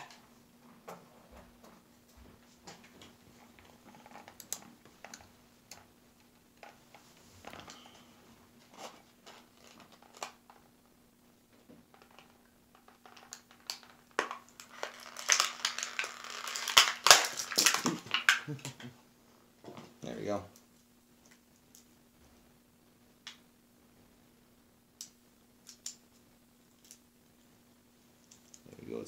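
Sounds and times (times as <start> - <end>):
stiff plastic crackling: 8.7 - 10.7, 11.8 - 18.9
knife cutting plastic packaging: 13.2 - 18.5.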